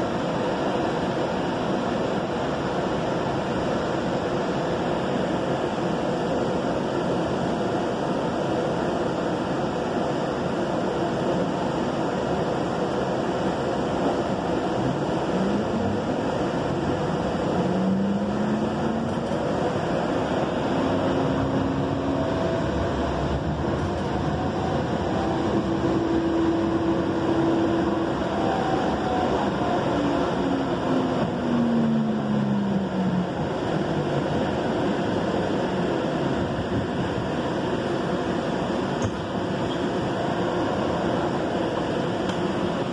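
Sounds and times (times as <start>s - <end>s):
train rolling rumble: 0.0s - 42.9s
train motor whine: 14.6s - 34.4s.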